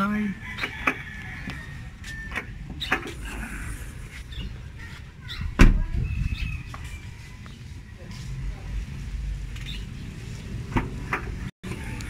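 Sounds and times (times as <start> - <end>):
loud thump: 5.6 - 5.9.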